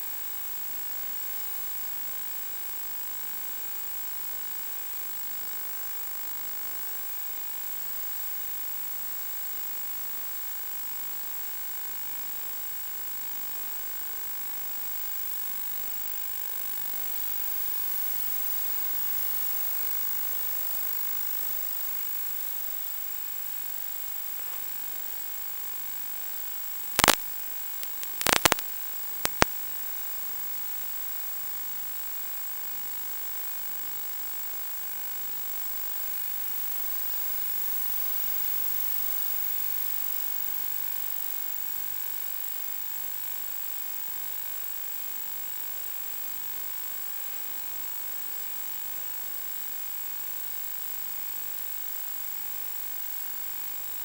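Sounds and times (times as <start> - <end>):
electrical hum and hiss: 27.0 - 29.5
sharp interference crackles: 27.0 - 29.5
thin high whine: 27.8 - 28.6.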